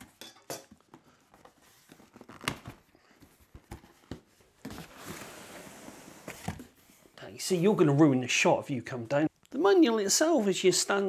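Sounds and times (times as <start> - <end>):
cardboard and paper rustling: 1.0 - 7.0.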